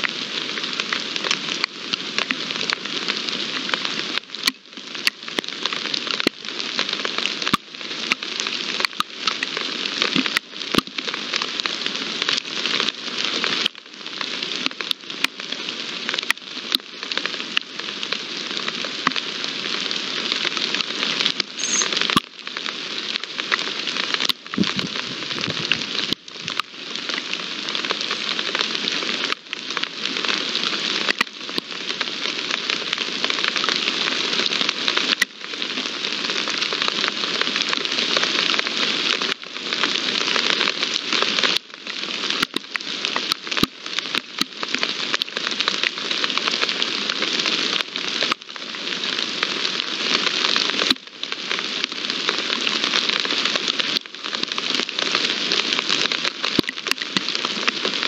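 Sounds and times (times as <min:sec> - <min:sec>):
steady rain hiss: 0:00.0 - 0:58.0
raindrops clicking: 0:56.1 - 0:57.9.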